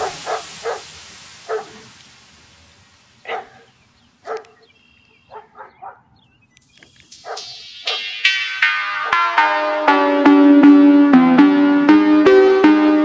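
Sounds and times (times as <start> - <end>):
dog barking: 0.0 - 1.9, 3.2 - 4.7, 5.3 - 6.1, 7.2 - 8.0.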